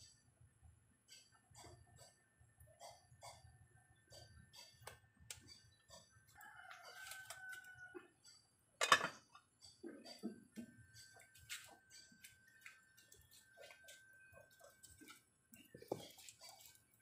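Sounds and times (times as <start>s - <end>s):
rooster crowing: 6.3s - 8.1s
metal pot lid clanking: 8.8s - 9.3s.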